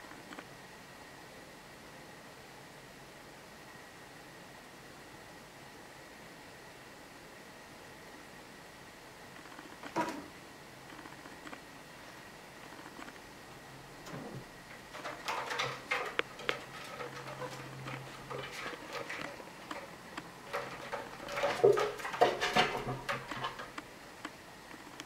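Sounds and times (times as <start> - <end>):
cat claws scratching rope post: 14.2 - 23.8.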